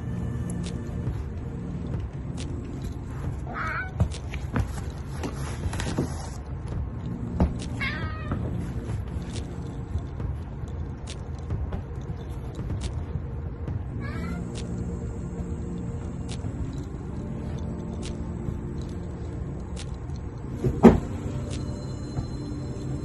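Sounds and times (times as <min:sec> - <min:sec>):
cat meowing: 0:03.5 - 0:04.0, 0:07.8 - 0:08.4.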